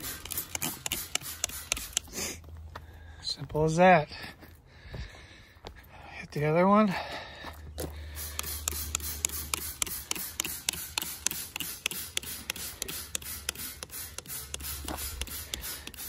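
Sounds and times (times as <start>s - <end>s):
spray bottle spraying onto metal: 0.0s - 2.2s, 8.2s - 16.0s.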